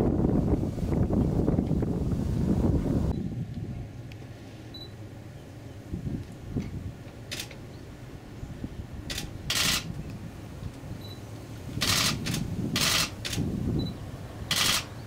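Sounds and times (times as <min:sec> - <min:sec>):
low wind rumble: 0:00.0 - 0:15.0
camera shutter bursts: 0:09.1 - 0:09.9, 0:11.8 - 0:13.4, 0:14.5 - 0:14.9.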